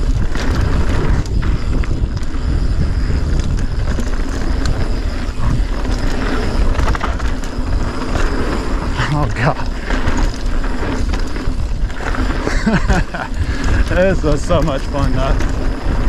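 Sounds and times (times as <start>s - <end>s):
bike clicks and rattles: 0.0s - 16.0s
tyres rolling on dirt trail: 0.0s - 16.0s
wind on microphone: 0.0s - 16.0s.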